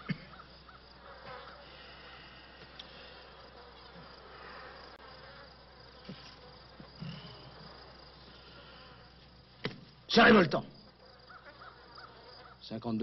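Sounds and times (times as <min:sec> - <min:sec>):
flies buzzing: 0:00.0 - 0:12.8
crickets chirping: 0:00.0 - 0:13.0.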